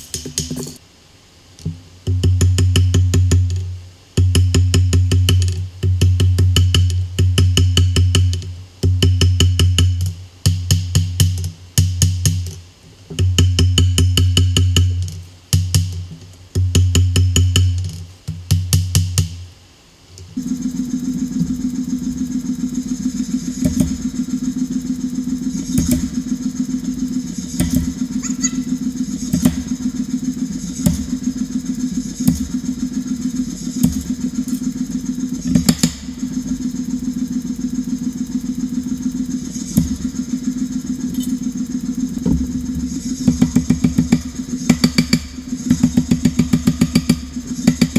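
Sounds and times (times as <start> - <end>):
power hammer motor running: 20.4 - 47.9
hammer striking steel on anvil: 27.6 - 28.7.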